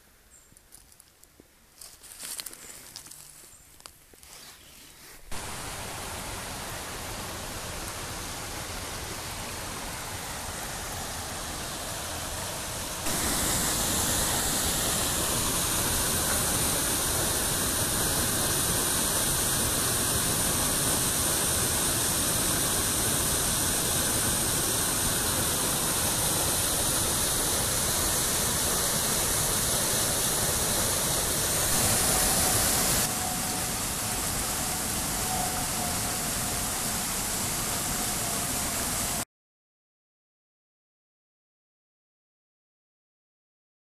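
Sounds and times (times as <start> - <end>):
stream running over stones: 5.2 - 39.2
waterfall pouring into pool: 5.3 - 39.2.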